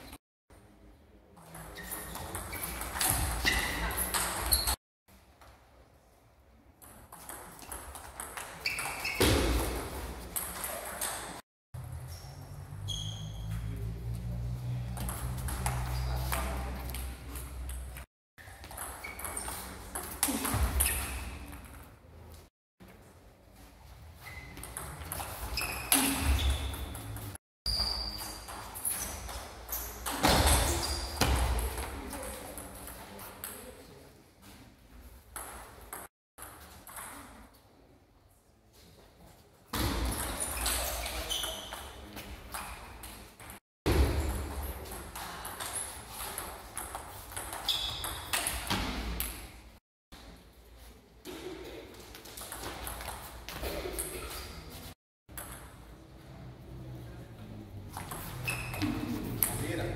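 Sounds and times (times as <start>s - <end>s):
shoe squeaks: 1.5s - 4.8s, 8.4s - 9.8s, 12.0s - 13.8s, 18.4s - 21.6s, 24.2s - 31.6s, 40.2s - 43.2s, 47.4s - 48.8s, 58.0s - 59.4s.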